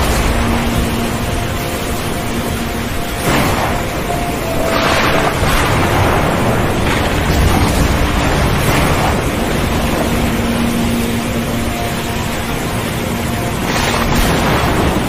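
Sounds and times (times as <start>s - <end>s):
waves breaking: 0.0s - 15.0s
wind: 0.0s - 15.0s.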